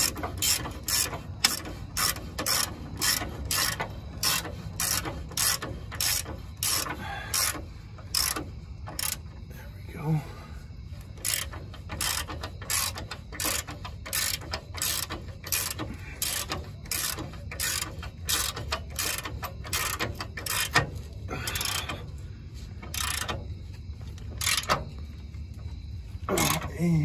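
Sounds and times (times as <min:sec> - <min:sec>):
socket ratchet clicking: 0:00.0 - 0:09.3, 0:11.1 - 0:20.9, 0:22.8 - 0:23.5, 0:24.1 - 0:24.9.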